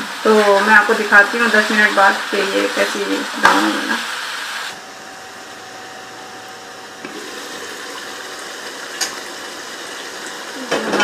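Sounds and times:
stew simmering hiss: 0:00.0 - 0:04.7
food sizzling in a pan: 0:00.0 - 0:04.8.

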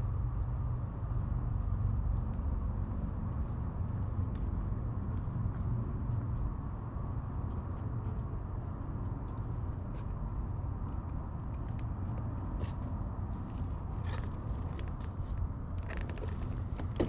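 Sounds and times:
bicycle tyre rumble: 0:14.0 - 0:17.0.

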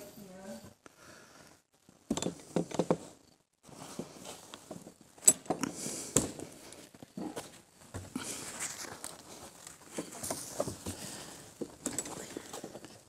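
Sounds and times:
wooden knocks and scrapes: 0:02.1 - 0:03.2.

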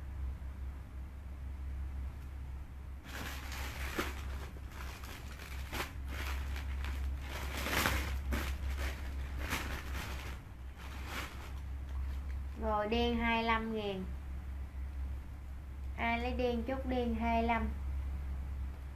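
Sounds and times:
clothes rustling: 0:03.0 - 0:12.6.

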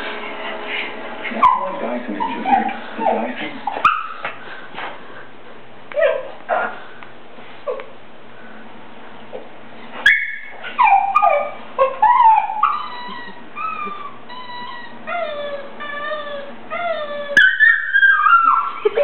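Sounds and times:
dog whining and yipping: 0:01.4 - 0:04.3, 0:06.0 - 0:06.8, 0:10.0 - 0:19.0.

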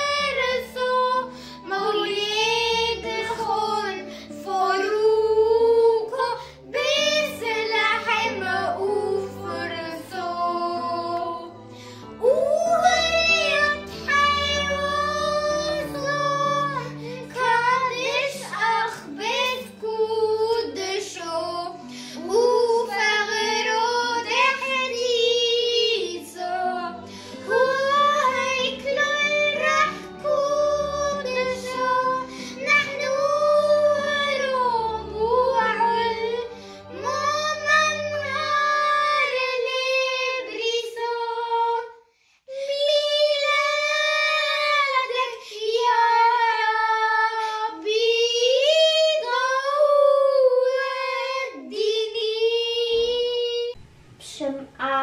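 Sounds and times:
low sustained instrumental backing: 0:00.0 - 0:41.5
girls singing a hymn: 0:00.0 - 0:53.8.

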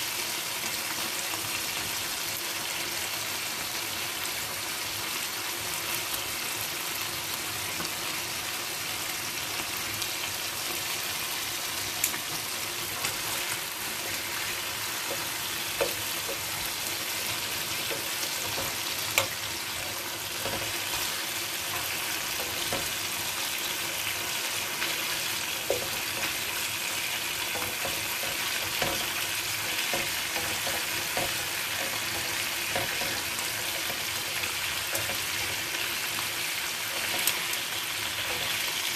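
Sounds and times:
chicken sizzling in a pan: 0:00.0 - 0:38.9.

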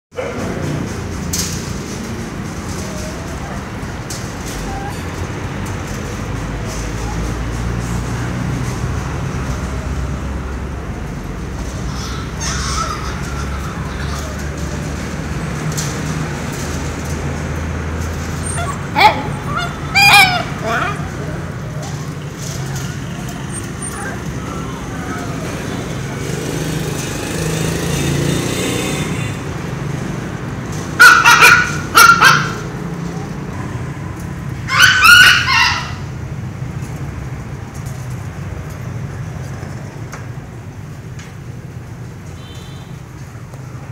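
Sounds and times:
low traffic rumble: 0:00.1 - 0:43.9
puppies barking: 0:11.8 - 0:14.8, 0:18.0 - 0:25.6, 0:30.9 - 0:32.9, 0:34.6 - 0:36.0
puppy yelping: 0:18.3 - 0:21.1, 0:31.0 - 0:32.6, 0:34.7 - 0:36.0.

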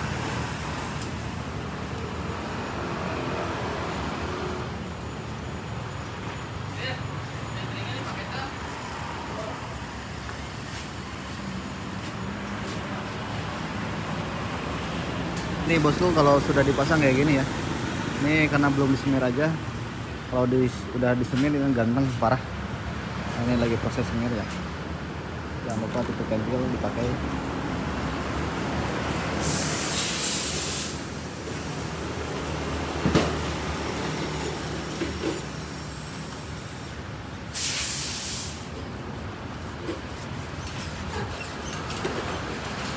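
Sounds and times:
street traffic noise: 0:00.0 - 0:42.9
vehicle engine humming: 0:21.0 - 0:37.5
spray can hissing: 0:29.4 - 0:31.2, 0:37.5 - 0:38.7.

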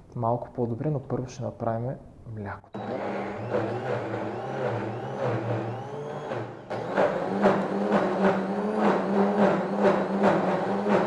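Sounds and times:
blender motor running: 0:02.8 - 0:11.0.

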